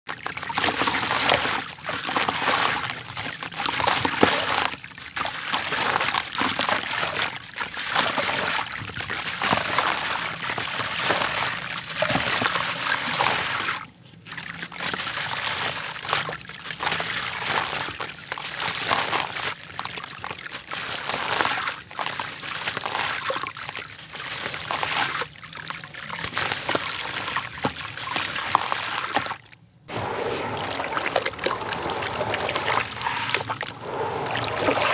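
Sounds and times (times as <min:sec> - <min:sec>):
dirt trickling into water: 0:00.1 - 0:34.9.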